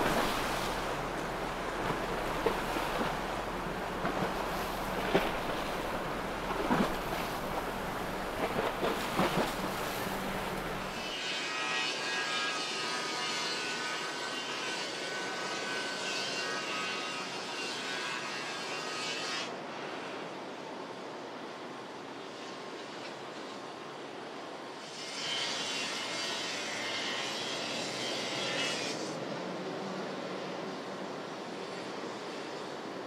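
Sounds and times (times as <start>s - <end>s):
low engine hum: 0.0s - 11.0s
small propellers whining: 0.0s - 11.0s
water splashes: 0.0s - 11.1s
water noise: 0.0s - 11.2s
wind: 0.0s - 33.0s.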